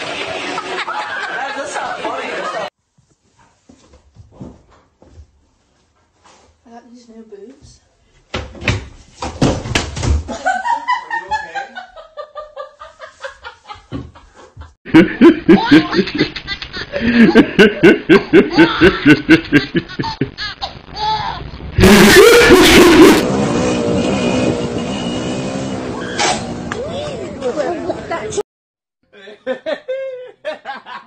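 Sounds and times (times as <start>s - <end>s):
thuds: 8.3s - 10.4s
man laughing hard: 14.9s - 20.6s, 21.8s - 23.2s, 29.1s - 31.0s
loud noisy rush: 21.4s - 26.0s.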